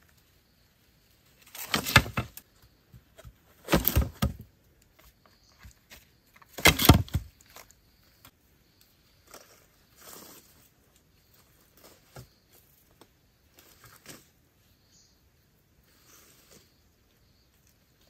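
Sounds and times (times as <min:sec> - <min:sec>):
sticks and dry leaves rustling: 0:01.2 - 0:02.5, 0:03.2 - 0:07.8.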